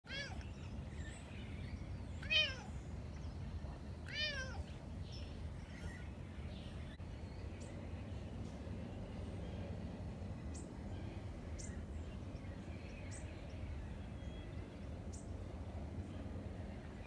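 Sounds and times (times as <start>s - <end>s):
cat meowing: 0.1s - 0.5s, 2.2s - 2.7s, 4.1s - 4.7s.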